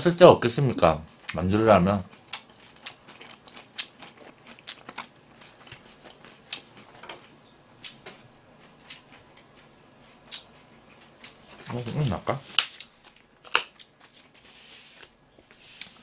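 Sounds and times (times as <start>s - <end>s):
chewing: 2.0s - 12.1s.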